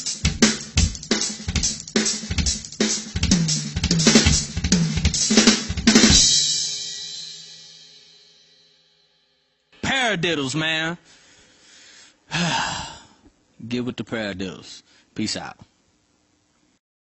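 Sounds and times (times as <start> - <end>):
drum kit playing: 0.0 - 8.2
cymbal crash: 5.4 - 9.1.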